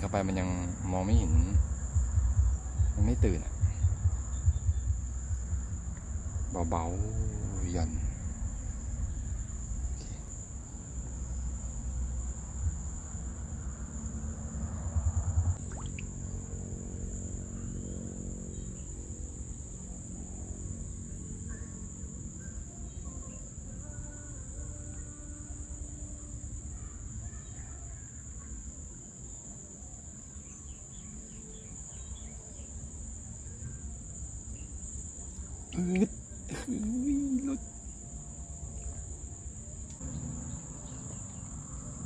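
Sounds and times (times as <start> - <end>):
low hum: 0.0 - 26.9
insects trilling: 0.0 - 42.0
low outdoor rumble: 0.0 - 42.0.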